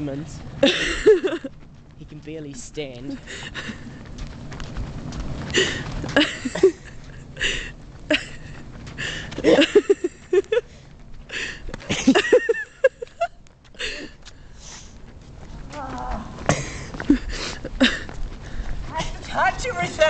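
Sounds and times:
people laughing: 0:00.6 - 0:01.6, 0:03.1 - 0:04.1, 0:05.6 - 0:08.6, 0:09.3 - 0:10.6, 0:11.3 - 0:14.2.

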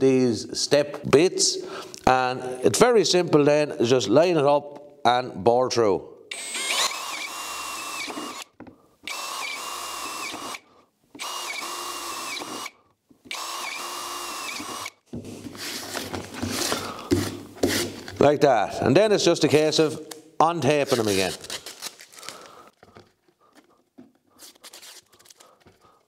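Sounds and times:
cordless drill whining: 0:06.3 - 0:15.0.

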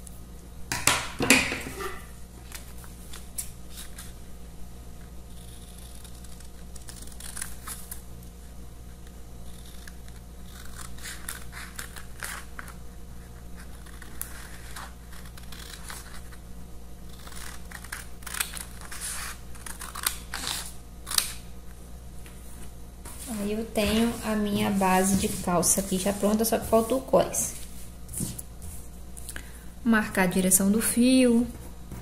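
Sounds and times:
scissors cutting paper: 0:05.3 - 0:08.0, 0:09.0 - 0:12.8, 0:13.6 - 0:16.4, 0:17.0 - 0:21.4.

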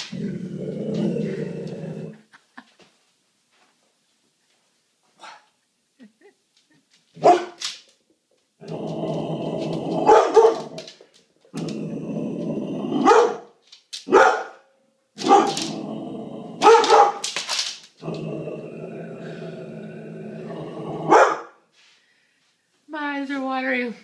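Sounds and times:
dog barking: 0:07.2 - 0:07.6, 0:10.1 - 0:10.7, 0:13.0 - 0:13.5, 0:14.1 - 0:15.6, 0:16.6 - 0:17.2, 0:21.1 - 0:21.6.

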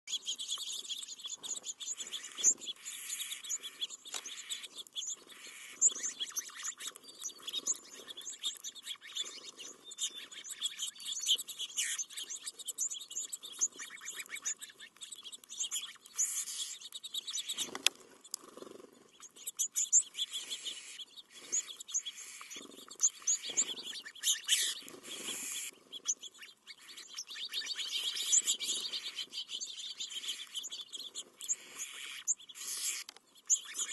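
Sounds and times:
songbirds chirping and twittering: 0:00.0 - 0:33.9
quick scattered ticks: 0:12.2 - 0:20.6.

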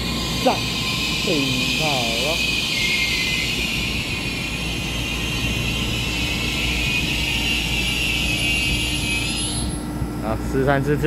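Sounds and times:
low train rumble: 0:00.0 - 0:11.0
train high whine: 0:00.0 - 0:11.0.

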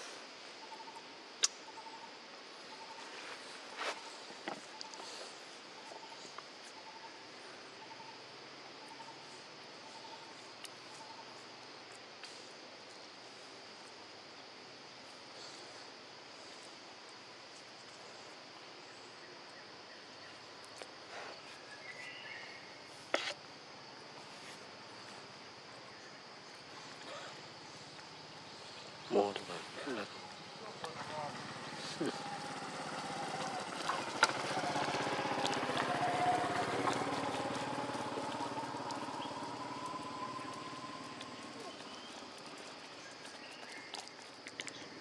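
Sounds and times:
faint chirp: 0:17.5 - 0:23.4, 0:24.2 - 0:44.9
high-pitched insect drone: 0:26.5 - 0:43.9
small engine running: 0:30.6 - 0:43.0.

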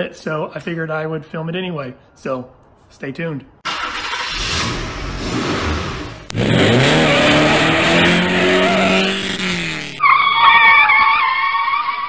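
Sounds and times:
car engine revving: 0:03.7 - 0:10.0
high wavering tire screech: 0:03.7 - 0:12.0.

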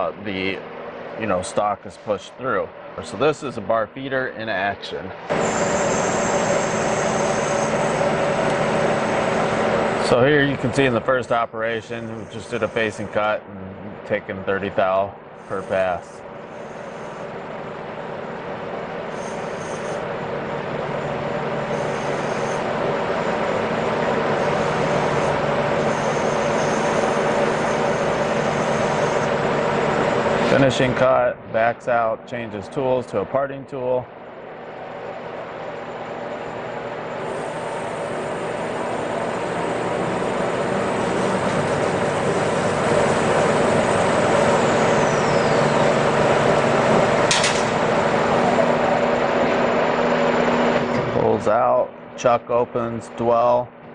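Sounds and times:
turning tool cutting metal: 0:05.3 - 0:10.2, 0:11.9 - 0:13.2, 0:15.4 - 0:17.3, 0:19.1 - 0:20.1, 0:21.6 - 0:29.7, 0:37.2 - 0:49.0
lathe spindle whirring: 0:05.3 - 0:11.0, 0:11.9 - 0:13.4, 0:15.2 - 0:31.0, 0:34.1 - 0:51.3.

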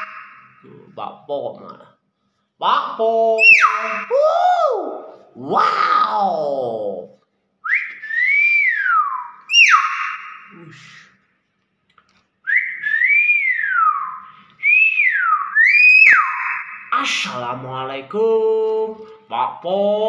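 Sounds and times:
myna bird whistling: 0:03.4 - 0:04.2, 0:07.7 - 0:10.6, 0:12.5 - 0:16.9.

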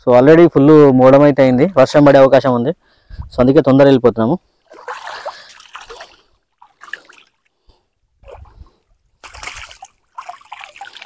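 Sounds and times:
water splashing and sloshing: 0:04.5 - 0:11.0.

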